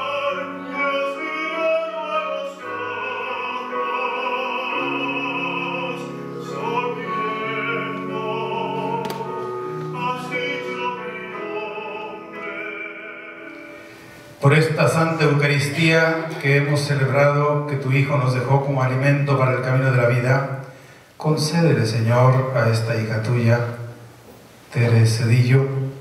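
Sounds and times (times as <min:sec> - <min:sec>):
person singing operatic hymn: 0:00.0 - 0:18.1.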